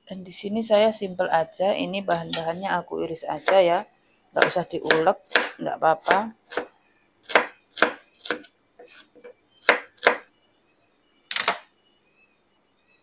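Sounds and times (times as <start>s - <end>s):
knife chopping on cutting board: 4.4s - 9.0s, 9.6s - 10.2s.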